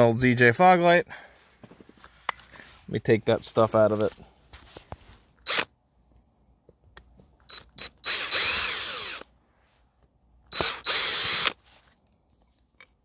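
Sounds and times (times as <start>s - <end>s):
power screwdriver running: 5.4s - 5.7s, 7.5s - 9.3s, 10.5s - 11.6s.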